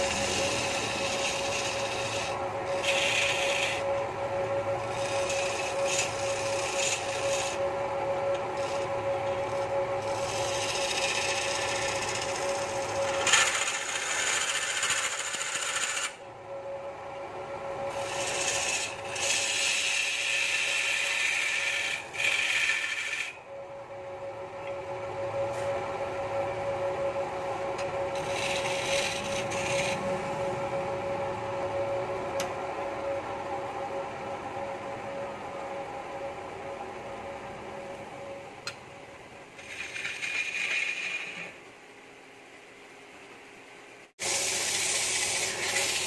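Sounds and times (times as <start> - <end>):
tool scraping spinning wood: 0.0 - 16.2, 17.8 - 23.4, 27.7 - 31.8, 39.5 - 41.6, 44.2 - 46.0
wood lathe humming: 0.0 - 37.3, 39.5 - 41.6, 44.2 - 46.0.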